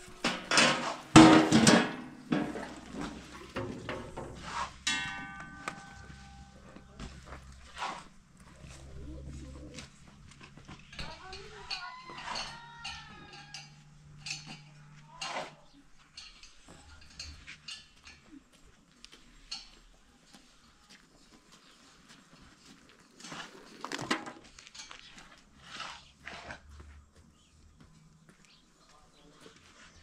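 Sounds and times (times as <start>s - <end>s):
metal clatter: 0.0s - 7.8s, 10.5s - 18.2s
light metal clinks and knocks: 0.1s - 7.7s, 10.0s - 20.4s.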